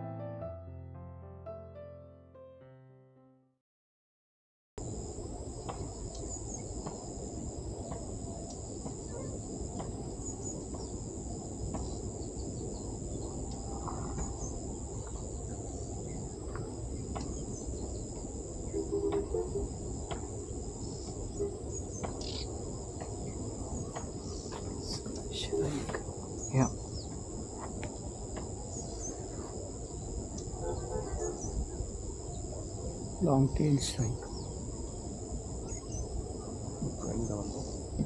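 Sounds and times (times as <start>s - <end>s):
insects droning: 4.8s - 38.0s
bird chirps: 20.8s - 27.2s.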